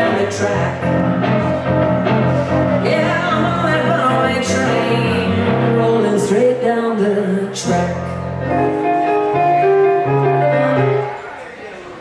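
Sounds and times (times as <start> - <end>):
electric guitar: 0.0 - 6.5
electric keyboard: 0.0 - 6.5, 7.3 - 11.7.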